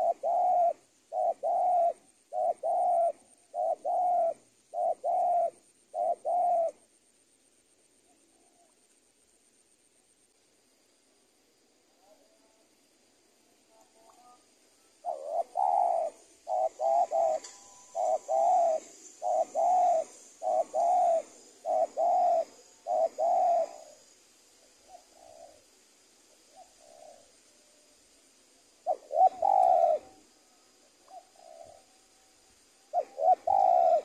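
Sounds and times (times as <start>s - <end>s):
dove cooing: 0.0s - 6.9s, 14.0s - 25.7s, 26.3s - 27.4s, 28.7s - 32.0s, 32.9s - 34.0s.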